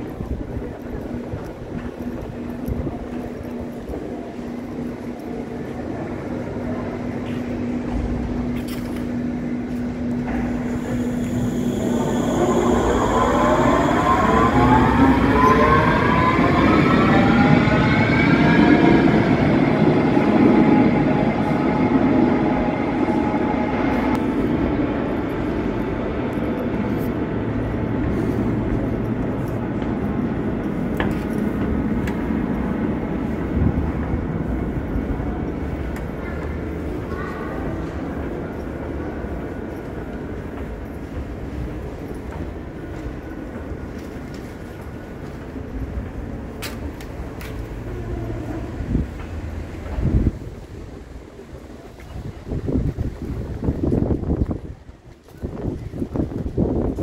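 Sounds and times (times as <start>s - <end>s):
wheels rumbling on rail: 0.0s - 57.0s
train traction motors whining: 7.3s - 37.0s.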